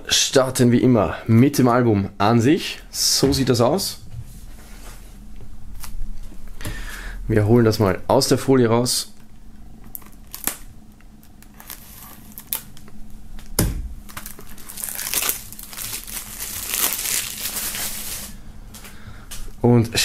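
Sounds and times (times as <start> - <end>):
plastic film crinkling: 9.8 - 18.4.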